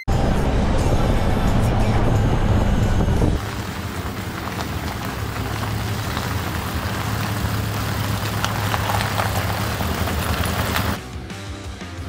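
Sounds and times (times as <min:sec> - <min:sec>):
car engine low hum: 0:00.0 - 0:11.0
tyres crunching on gravel: 0:03.4 - 0:11.0.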